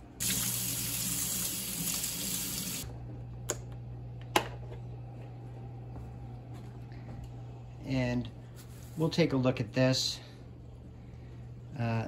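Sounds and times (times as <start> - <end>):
kitchen faucet running: 0.0 - 2.9.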